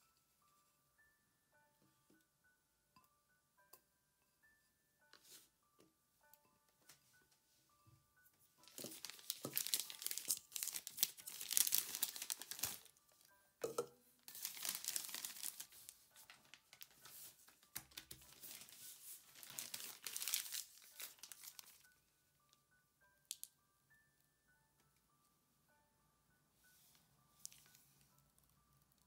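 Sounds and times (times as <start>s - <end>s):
plastic bag crinkling: 8.6s - 13.0s, 14.3s - 21.9s, 27.4s - 27.8s.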